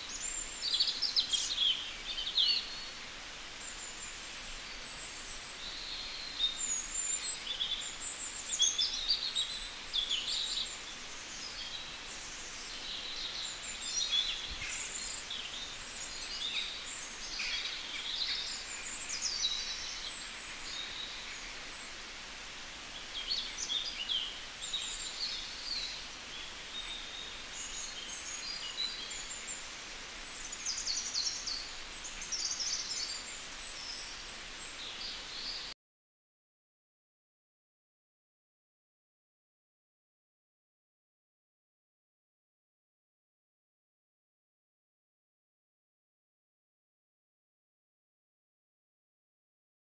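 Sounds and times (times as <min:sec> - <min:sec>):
small birds chirping: 0:00.0 - 0:35.7
outdoor hiss: 0:00.0 - 0:35.8.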